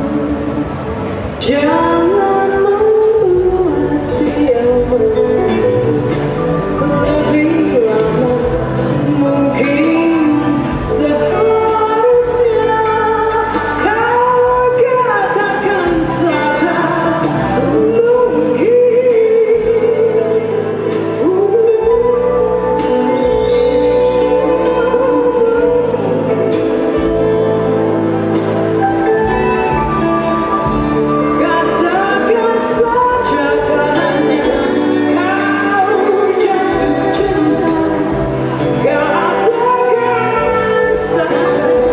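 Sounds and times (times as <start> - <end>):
drums: 0.0 - 41.9
electric guitar: 0.0 - 41.9
pop band playing: 0.0 - 41.9
woman singing into microphone: 0.0 - 41.9.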